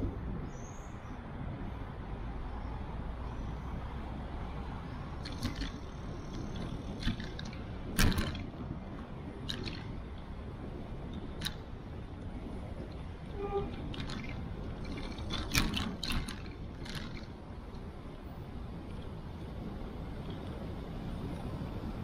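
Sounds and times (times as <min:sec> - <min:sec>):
bicycle tyre and wind noise: 0:00.0 - 0:22.0
bike knocks and rattles: 0:05.2 - 0:17.9.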